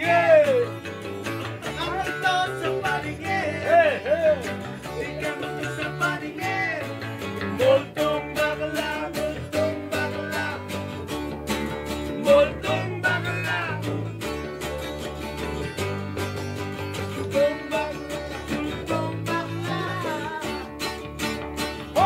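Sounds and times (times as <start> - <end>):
acoustic guitar strumming: 0.0 - 22.0.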